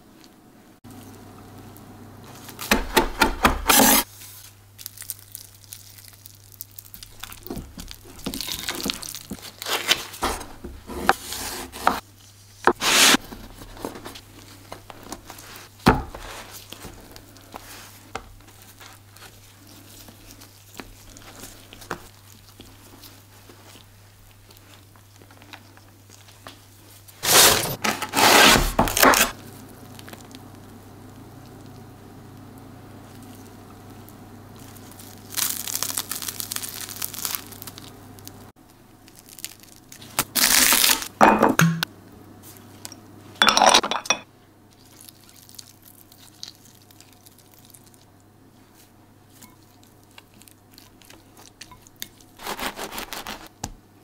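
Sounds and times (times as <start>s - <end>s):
crusty bread crackling: 4.0s - 41.1s, 44.7s - 53.6s.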